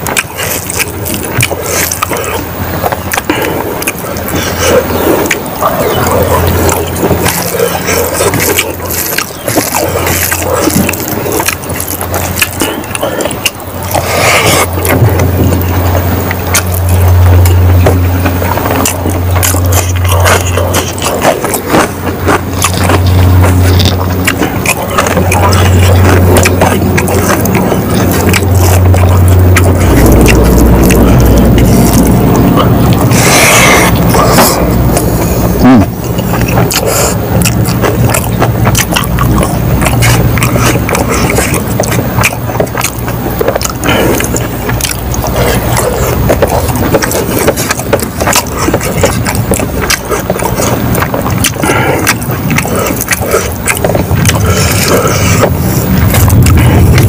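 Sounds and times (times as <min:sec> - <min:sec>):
loud low hum: 0:00.0 - 0:57.0
wet chewing and lip smacking: 0:00.0 - 0:57.0.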